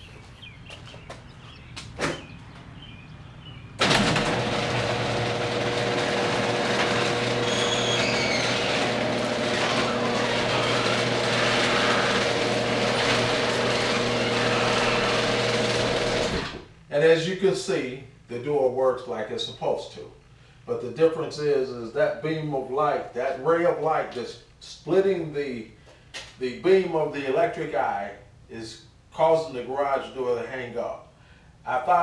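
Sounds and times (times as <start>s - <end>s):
garage door opener humming: 3.8s - 16.8s.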